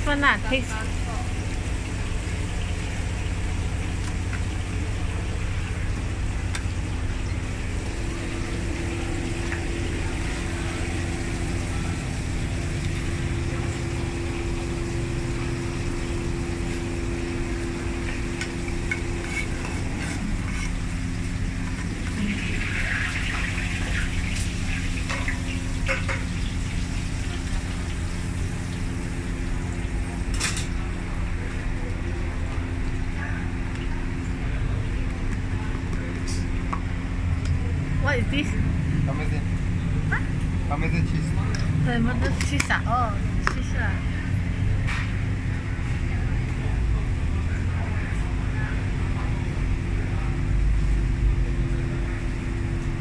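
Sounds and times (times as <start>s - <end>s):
kitchen hum: 0.0s - 53.0s
frying pan and utensils scraping: 18.7s - 20.9s.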